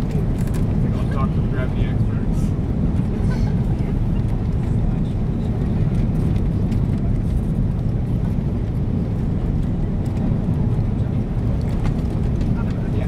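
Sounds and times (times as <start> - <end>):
aircraft cabin engine rumble: 0.0 - 13.0.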